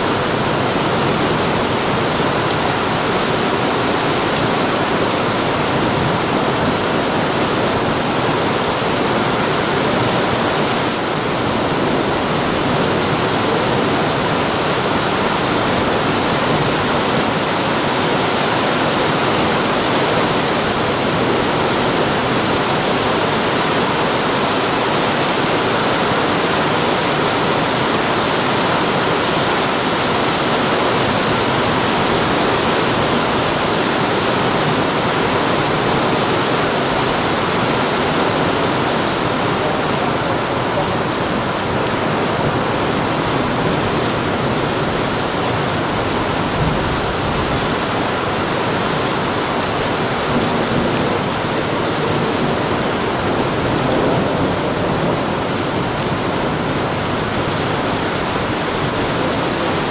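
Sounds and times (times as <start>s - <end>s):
heavy rain downpour: 0.0s - 59.9s.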